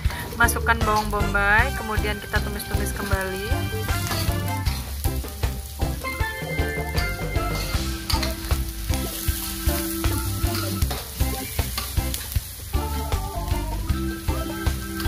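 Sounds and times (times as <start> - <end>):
onion sizzling in hot oil: 0.0 - 15.0
soft background music: 0.0 - 15.0
metal spatula scraping a pan: 0.8 - 5.2, 6.0 - 12.3.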